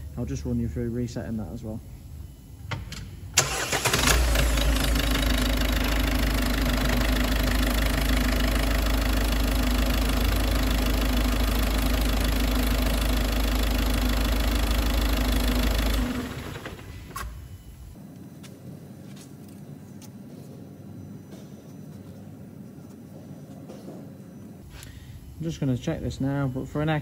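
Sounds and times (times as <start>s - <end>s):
diesel engine idling: 3.4s - 17.2s.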